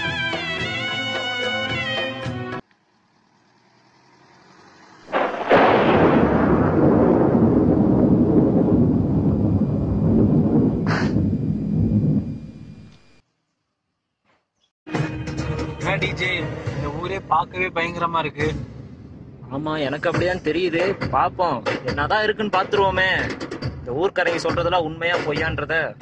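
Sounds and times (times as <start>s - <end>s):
loud crash with deep rumble: 5.1s - 12.4s.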